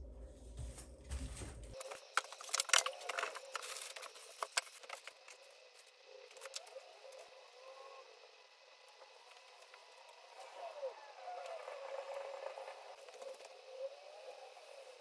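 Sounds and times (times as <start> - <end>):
plastic packaging rustling: 1.7 - 5.5.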